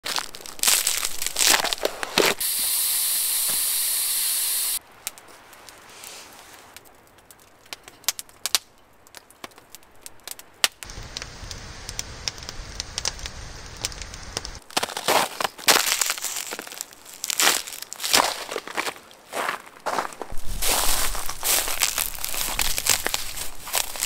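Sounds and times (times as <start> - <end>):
campfire crackling and popping: 0.0 - 3.7, 4.4 - 19.1, 20.3 - 24.0
loud steady hiss: 2.4 - 4.8, 10.8 - 14.6.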